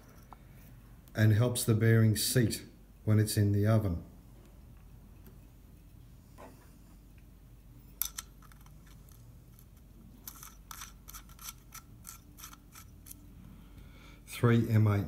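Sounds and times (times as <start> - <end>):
metal nuts clicking on studs: 8.0 - 13.3.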